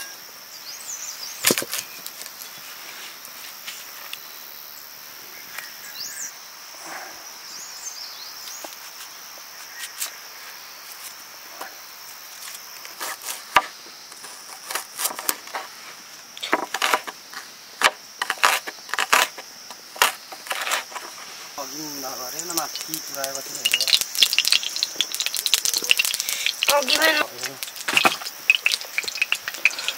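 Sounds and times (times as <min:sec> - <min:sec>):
insects droning: 0:00.0 - 0:29.9
wooden knocks and cracks: 0:01.4 - 0:02.3, 0:23.7 - 0:29.9.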